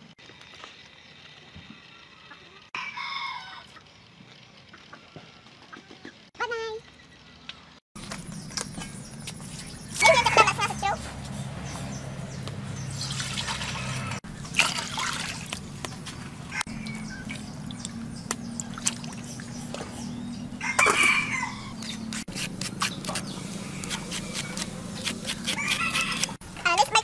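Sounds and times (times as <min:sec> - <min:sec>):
rooster crowing: 0:02.8 - 0:03.8, 0:20.3 - 0:21.9, 0:25.5 - 0:26.4
water sloshing in a wok: 0:13.0 - 0:21.2
chickens clucking: 0:16.4 - 0:21.9.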